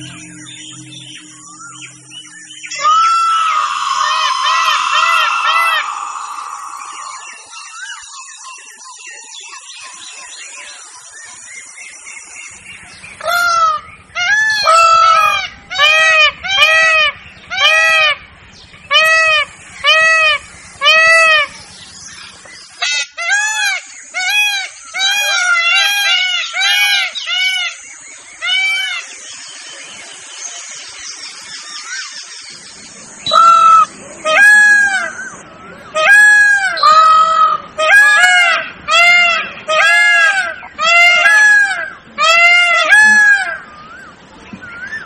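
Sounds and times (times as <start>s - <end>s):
peacock calling: 0.0s - 8.1s, 12.9s - 29.3s, 33.0s - 45.0s
faint bird chirps: 0.0s - 14.2s.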